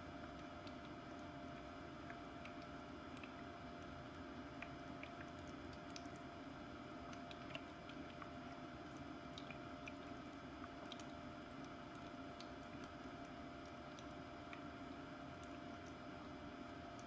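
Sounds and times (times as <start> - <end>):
diffuser humming: 0.0 - 17.0
tiny ticks: 2.0 - 3.9, 7.1 - 14.7
water squishing and dripping: 7.1 - 16.0.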